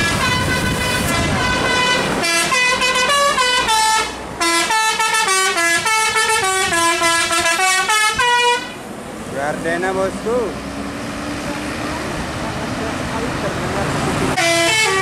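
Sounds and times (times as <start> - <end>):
musical air horn playing a tune: 0.0 - 8.8, 14.4 - 15.0
low engine rumble: 8.8 - 14.7.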